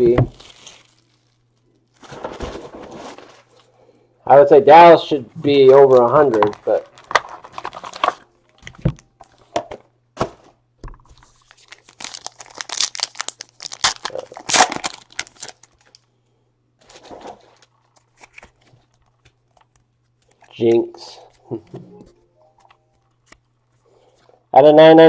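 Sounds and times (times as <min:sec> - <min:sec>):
wrapper tearing and crinkling: 0:00.0 - 0:03.6, 0:05.8 - 0:08.3, 0:11.1 - 0:16.1, 0:16.8 - 0:20.6
cards rustling: 0:05.6 - 0:09.6, 0:10.3 - 0:16.0, 0:16.8 - 0:24.4.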